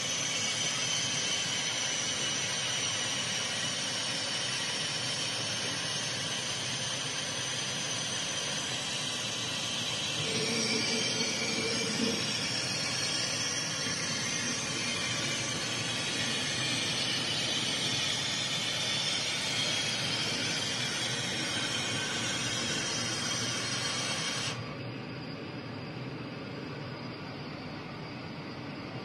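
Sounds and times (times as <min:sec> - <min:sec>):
laser cutter fans hissing: 0:00.0 - 0:29.0
dull machine hum: 0:09.8 - 0:27.0.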